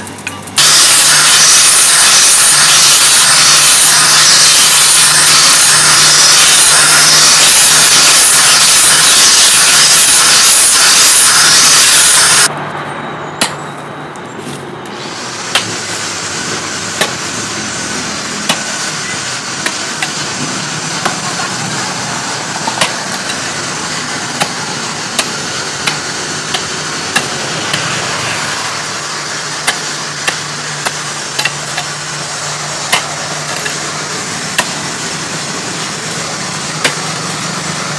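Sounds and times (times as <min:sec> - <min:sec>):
steady motor hum: 0:00.0 - 0:37.9
pick striking stony ground: 0:13.4 - 0:13.8, 0:32.9 - 0:33.8, 0:34.6 - 0:34.8.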